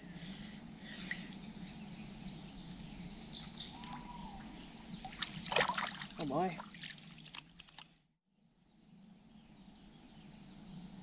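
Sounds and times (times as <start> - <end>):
small birds chirping: 0.0 - 6.9.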